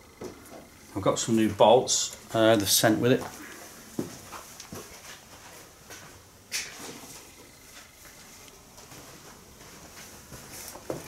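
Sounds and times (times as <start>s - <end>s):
small taps and rustles: 2.6s - 11.0s.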